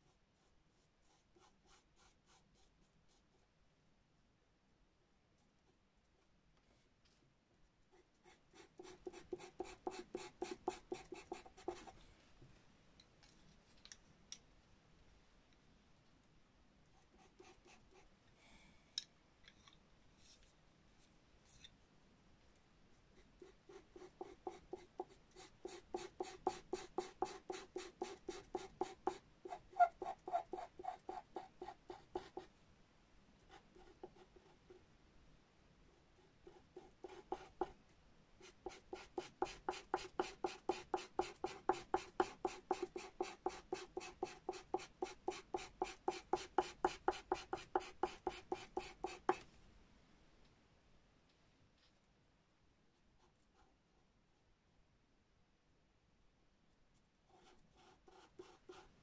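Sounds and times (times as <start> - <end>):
pencil scratching on paper: 0.0 - 3.4, 7.9 - 12.0, 17.0 - 18.1, 23.2 - 32.5, 33.5 - 34.8, 36.0 - 37.8, 38.4 - 49.4, 57.3 - 59.0.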